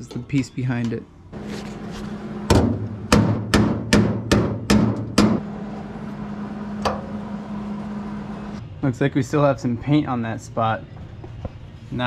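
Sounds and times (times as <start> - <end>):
hammer striking sheet metal: 2.5 - 5.4.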